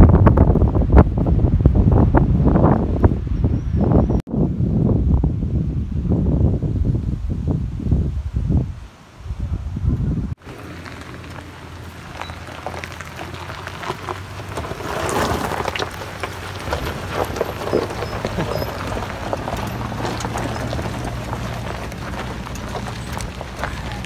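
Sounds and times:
low engine hum: 10.3s - 24.0s
tyres crunching on gravel: 10.4s - 24.0s.

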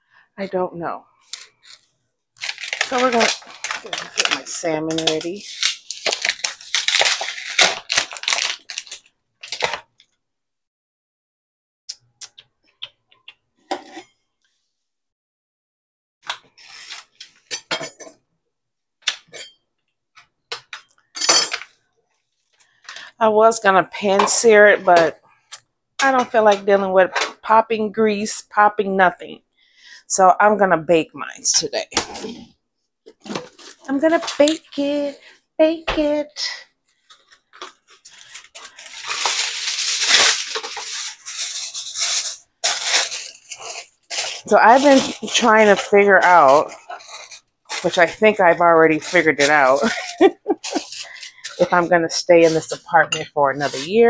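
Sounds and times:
kitchen wrap crinkling: 1.1s - 10.2s, 31.6s - 32.5s, 33.1s - 35.4s, 36.0s - 54.0s
dishes and utensils clattering: 17.5s - 18.2s, 19.2s - 19.6s, 20.6s - 21.7s.

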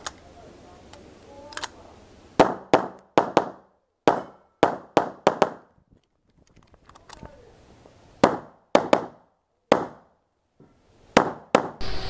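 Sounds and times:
pistol shots: 2.4s - 5.7s, 8.2s - 10.1s.

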